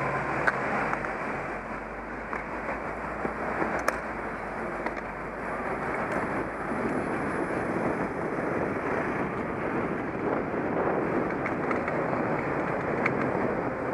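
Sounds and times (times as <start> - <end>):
road noise: 0.0 - 13.9
wind rush over microphone: 2.9 - 13.9.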